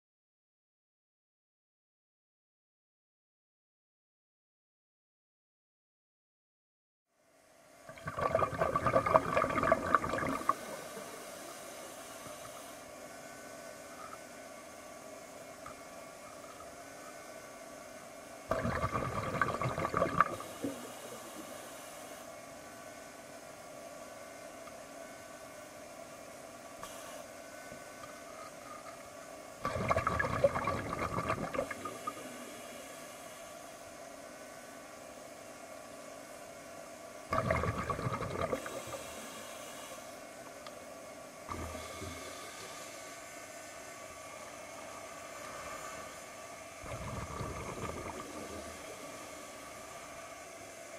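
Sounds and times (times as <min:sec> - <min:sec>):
breath bubbling underwater: 0:07.9 - 0:10.7, 0:18.5 - 0:20.9, 0:29.6 - 0:32.2, 0:37.3 - 0:39.0, 0:46.8 - 0:48.8
underwater hiss: 0:07.9 - 0:14.4, 0:18.5 - 0:22.7, 0:26.8 - 0:27.4, 0:28.0 - 0:50.9.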